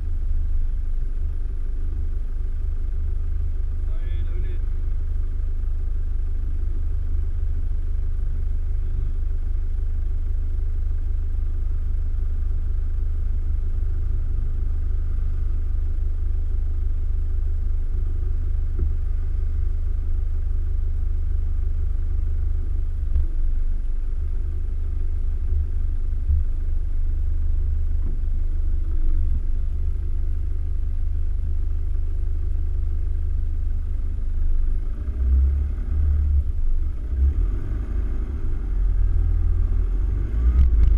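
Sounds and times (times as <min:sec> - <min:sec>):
heavy low thumps: 0:23.0 - 0:30.3.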